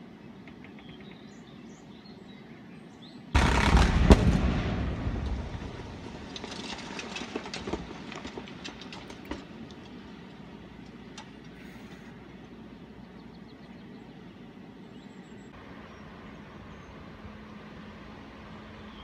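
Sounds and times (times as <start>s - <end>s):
falling debris clattering: 3.4s - 10.0s.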